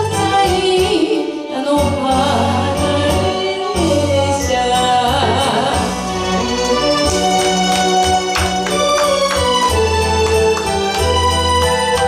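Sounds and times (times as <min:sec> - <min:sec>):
woman singing into a microphone: 0:00.0 - 0:06.1.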